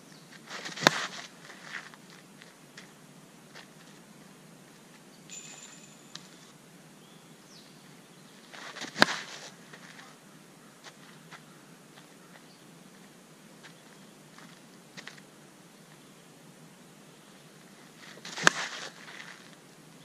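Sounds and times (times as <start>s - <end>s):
faint rustles: 0.3s - 5.1s, 17.6s - 19.6s
bat cracking against softball: 0.5s - 1.3s, 8.6s - 9.5s, 18.2s - 19.0s.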